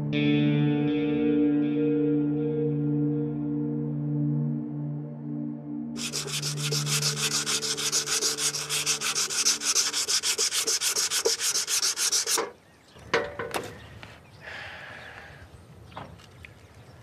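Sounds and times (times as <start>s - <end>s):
hand rubbing strokes on metal part: 6.0s - 12.6s.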